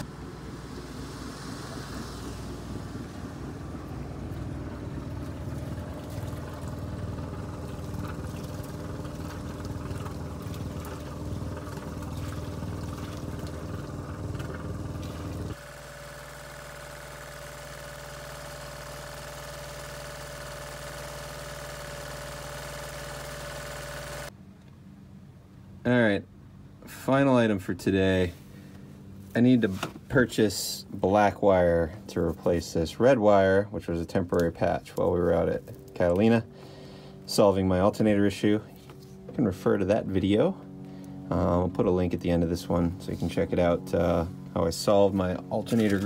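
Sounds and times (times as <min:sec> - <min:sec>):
diesel generator running: 0:00.0 - 0:25.0, 0:25.6 - 0:46.0
cooling water splashing: 0:00.1 - 0:15.6.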